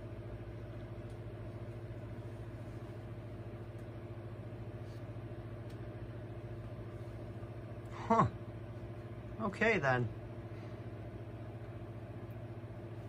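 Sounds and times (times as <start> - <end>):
desk fan running: 0.0 - 13.0
light tick: 5.6 - 5.9.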